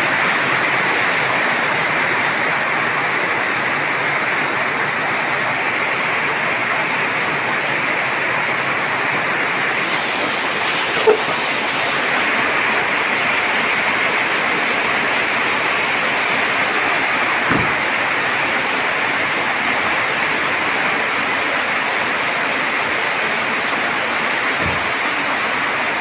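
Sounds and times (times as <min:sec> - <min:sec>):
rain: 0:00.0 - 0:26.0
running floodwater: 0:00.0 - 0:26.0.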